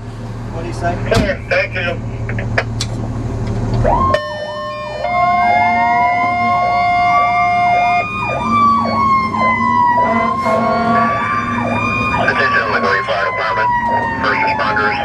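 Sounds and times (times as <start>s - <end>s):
electronic siren yelp: 3.8s - 15.0s
siren wail: 3.8s - 15.0s
steady horn tone: 8.7s - 11.5s.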